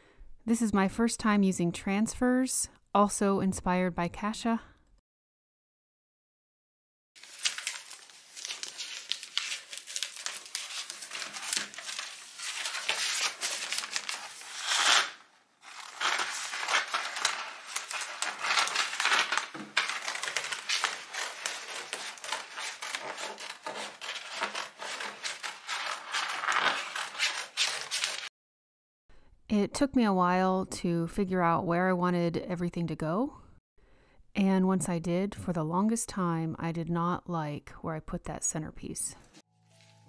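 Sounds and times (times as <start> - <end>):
paper sheets crinkling: 7.2 - 28.3, 39.6 - 40.0
scissors cutting paper: 7.2 - 28.3.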